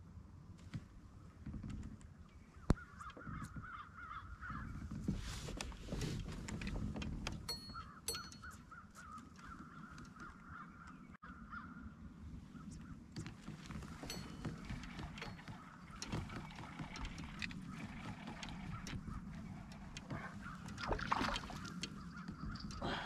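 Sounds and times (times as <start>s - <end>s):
bird calling repeated notes: 7.5s - 11.8s.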